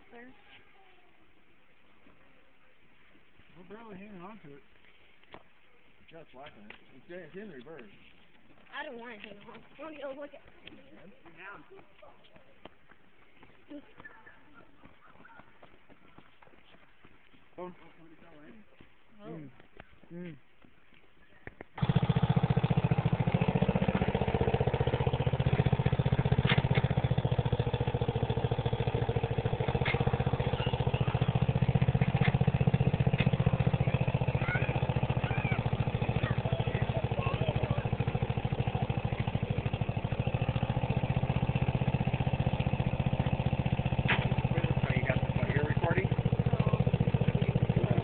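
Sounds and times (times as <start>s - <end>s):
atv engine idling: 21.8s - 48.0s.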